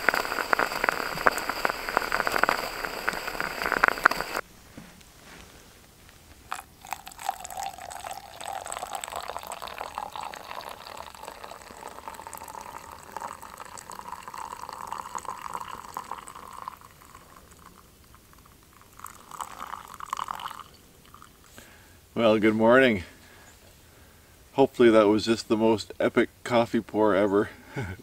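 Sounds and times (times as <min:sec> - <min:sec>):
coffee pouring into metal mug: 0:00.0 - 0:04.4, 0:06.5 - 0:21.4.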